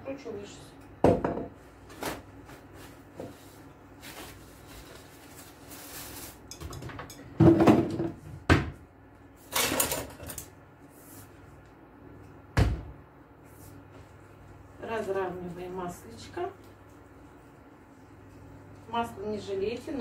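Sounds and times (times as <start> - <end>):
bowl and utensils clattering: 6.2 - 8.2, 9.4 - 10.5.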